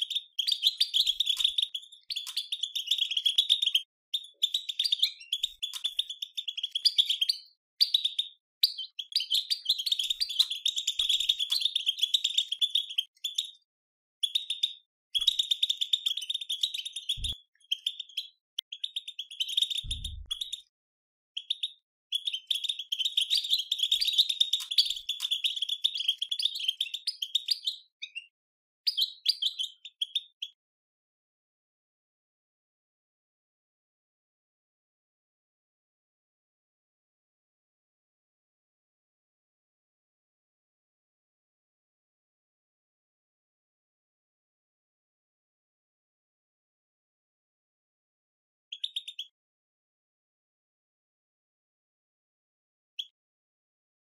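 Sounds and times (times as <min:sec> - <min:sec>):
goldfinch chattering: 0:00.0 - 0:13.5, 0:21.4 - 0:28.2.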